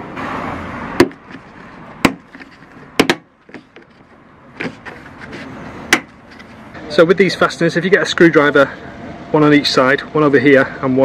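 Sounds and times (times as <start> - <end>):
sharp knocks: 1.0 - 1.4, 2.0 - 3.9, 5.9 - 6.2.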